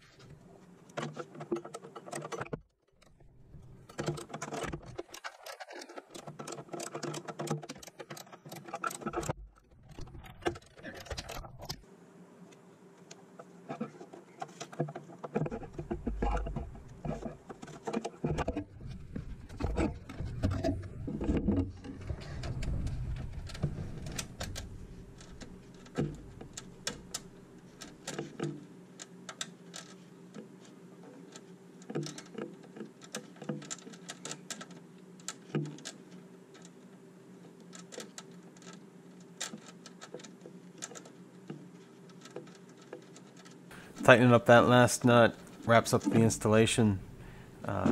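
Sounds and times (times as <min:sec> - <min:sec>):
low steady hum: 0:08.9 - 0:47.9
heavy knocks and handling noise: 0:13.4 - 0:28.7.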